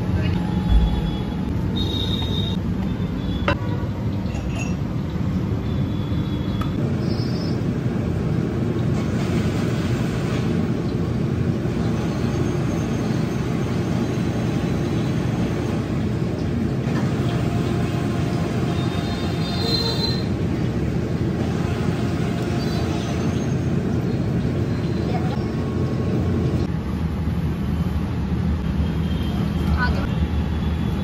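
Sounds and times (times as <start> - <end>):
low rumbling street noise: 0.0 - 31.0.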